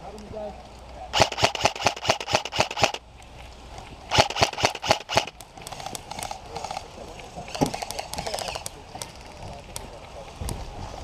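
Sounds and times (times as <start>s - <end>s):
airsoft rifle shots: 1.2s - 3.0s, 4.1s - 5.4s.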